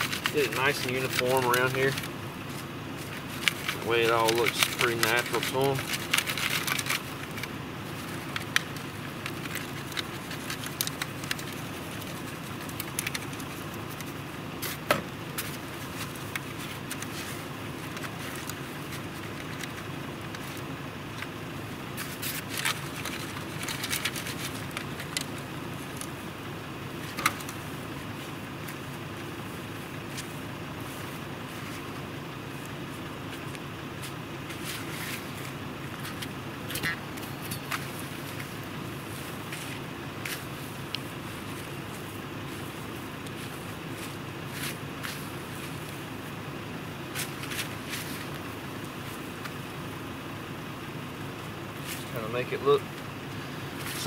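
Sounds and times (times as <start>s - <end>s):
clicks and scrapes: 0.0s - 26.2s
dirt rustling through a sifter: 0.0s - 50.0s, 51.1s - 52.8s, 53.5s - 54.0s.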